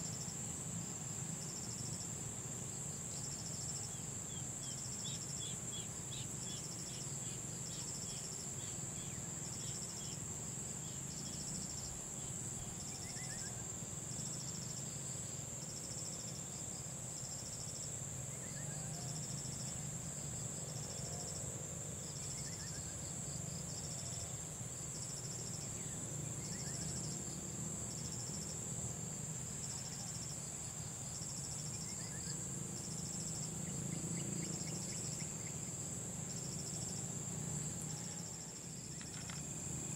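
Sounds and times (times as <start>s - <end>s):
insect high continuous buzz: 0.0s - 39.9s
insect pulsing trill: 29.4s - 39.9s.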